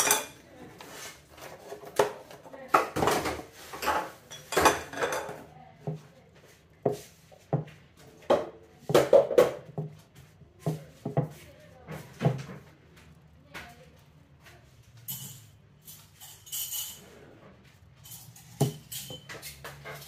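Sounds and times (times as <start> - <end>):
fork clinking on ceramic dish: 18.1 - 20.0.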